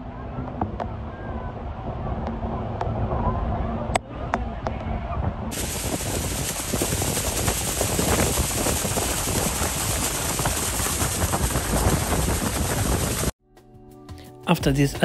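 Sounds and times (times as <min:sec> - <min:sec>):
wind buffeting microphone: 0:00.0 - 0:13.4
waterfall rushing: 0:05.5 - 0:13.3.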